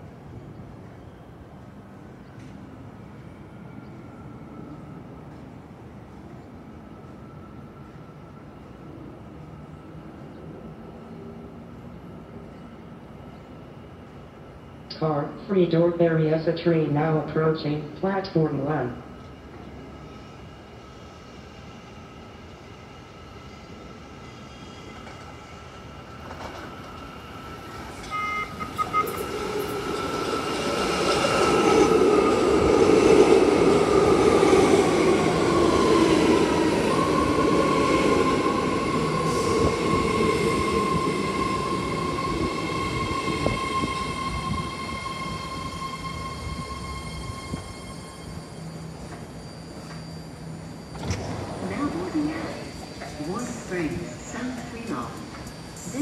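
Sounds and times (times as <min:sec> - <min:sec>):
train electric whine: 0:18.6 - 0:56.0
train wheel rumble: 0:24.8 - 0:56.0.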